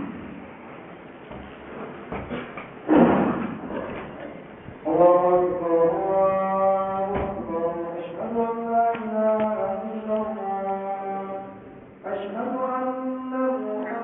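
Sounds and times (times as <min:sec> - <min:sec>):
man chanting: 0:04.8 - 0:14.0.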